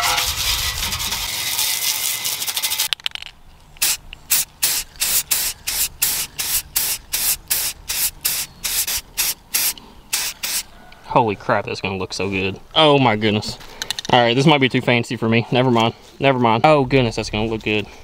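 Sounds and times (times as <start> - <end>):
spray paint can hissing: 0.0 - 2.9, 3.8 - 10.7.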